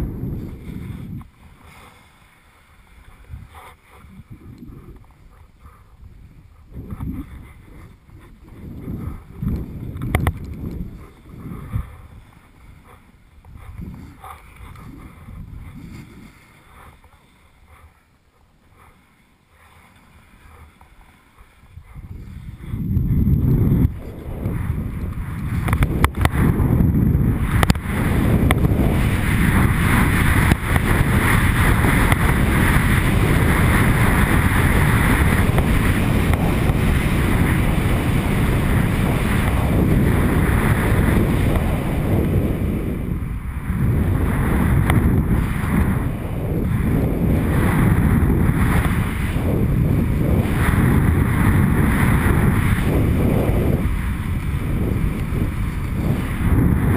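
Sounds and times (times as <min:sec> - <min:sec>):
wind rushing over microphone: 0:00.0 - 0:18.0, 0:21.4 - 0:56.9
skis swishing through snow: 0:00.2 - 0:05.5, 0:10.5 - 0:18.0, 0:18.8 - 0:42.9.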